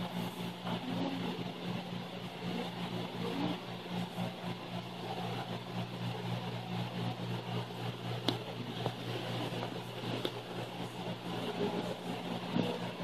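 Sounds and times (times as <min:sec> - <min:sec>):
mechanical hum with hiss: 0:00.0 - 0:13.0.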